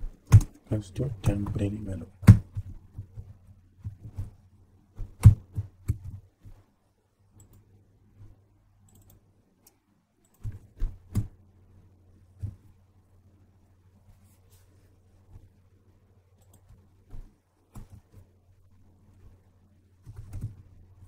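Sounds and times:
faint low hum: 0:00.0 - 0:21.0
keyboard and mouse clicks: 0:00.2 - 0:04.3, 0:05.0 - 0:06.2, 0:07.4 - 0:07.7, 0:08.8 - 0:11.3, 0:16.4 - 0:18.1, 0:20.0 - 0:20.6.

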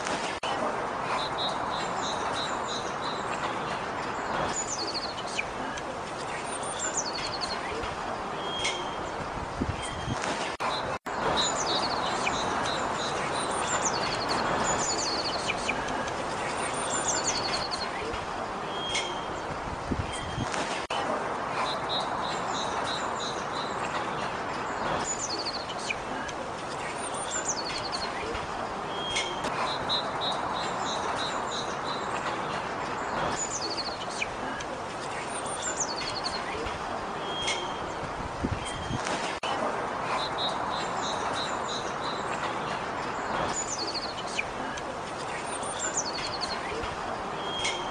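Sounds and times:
small songbirds calling: 0:00.0 - 0:47.9
steady background noise: 0:00.0 - 0:47.9
finches twittering: 0:01.2 - 0:20.5, 0:21.7 - 0:39.1, 0:40.2 - 0:47.9.

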